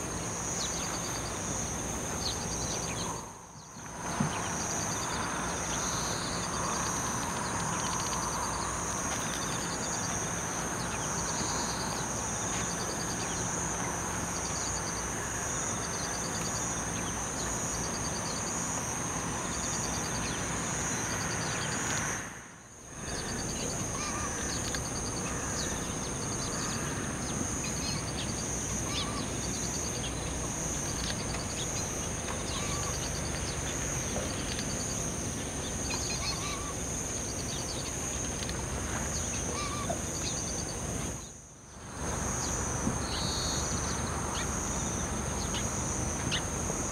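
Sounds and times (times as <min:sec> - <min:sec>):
birds chirping: 0:00.0 - 0:15.0, 0:23.0 - 0:41.4
insect trill: 0:00.0 - 0:46.9.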